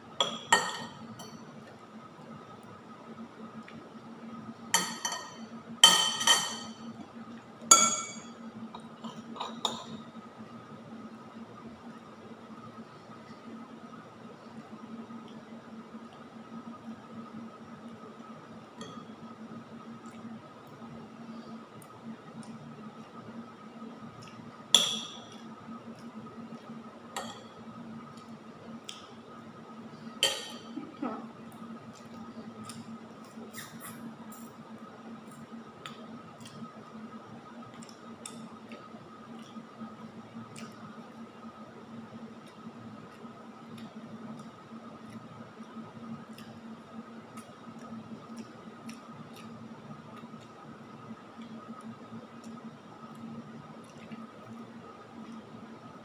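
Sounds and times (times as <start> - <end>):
faint hum: 0.0 - 56.0
cutlery clinking on ceramic bowl: 4.8 - 6.8, 7.7 - 8.4
metal spoon clinking on dish: 7.7 - 8.3.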